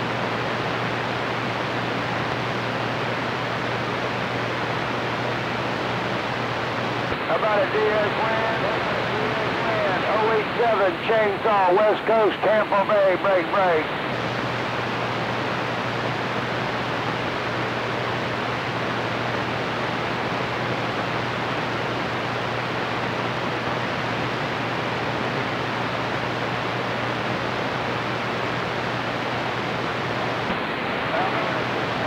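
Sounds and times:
radio static hiss: 0.0 - 32.0
steady low hum: 0.0 - 32.0.

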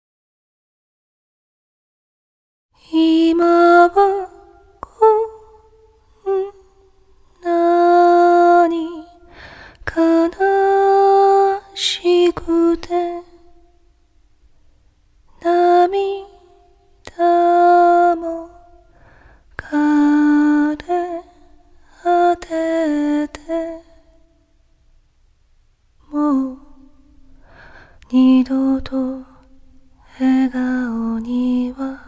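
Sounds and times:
woman singing unaccompanied: 2.8 - 13.8, 15.3 - 18.9, 19.5 - 24.2, 26.0 - 27.2, 28.0 - 32.0.

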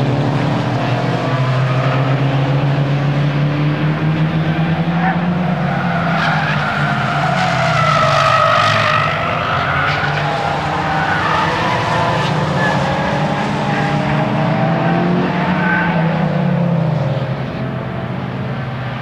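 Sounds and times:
car engine running hard: 0.0 - 19.0.

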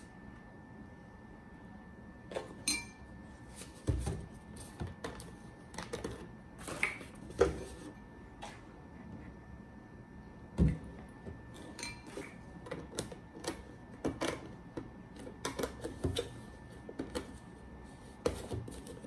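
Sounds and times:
spoon clinking in ceramic bowl: 2.6 - 3.0.

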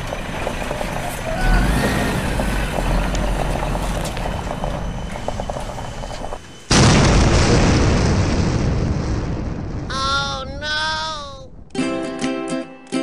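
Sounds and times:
steady low rumble: 2.3 - 11.8
loud explosion boom: 6.7 - 11.8.

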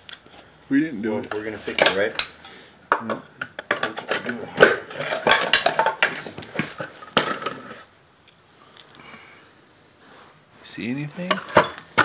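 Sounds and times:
metal tools clinking and knocking: 11.2 - 12.0.

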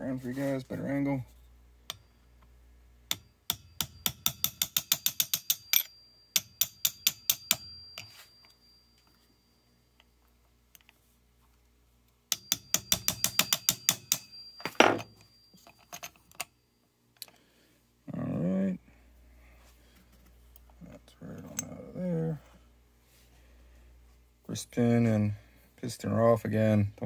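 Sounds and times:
thin metallic ring: 3.1 - 11.0, 12.3 - 16.9, 20.5 - 22.5.

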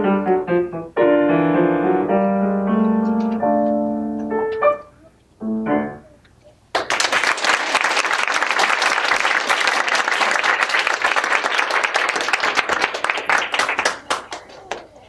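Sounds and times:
audience applauding: 6.7 - 15.0.

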